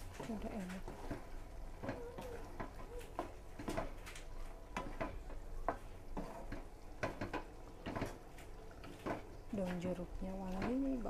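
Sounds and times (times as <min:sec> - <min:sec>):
spatula knocking in frying pan: 0:04.7 - 0:08.2.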